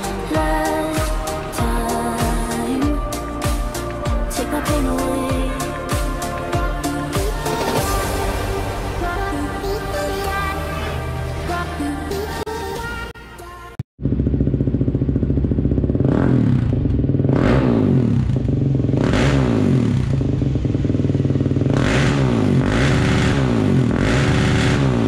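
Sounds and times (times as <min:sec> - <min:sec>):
music: 0:00.0 - 0:13.8
quad engine revving: 0:14.0 - 0:25.0.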